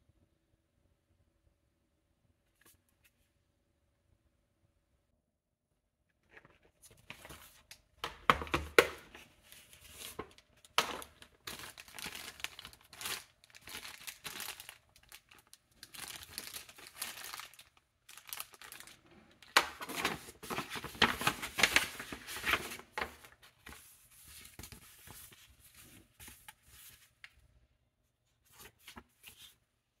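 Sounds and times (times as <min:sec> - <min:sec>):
plastic and paper packaging crinkling: 0:06.4 - 0:27.3.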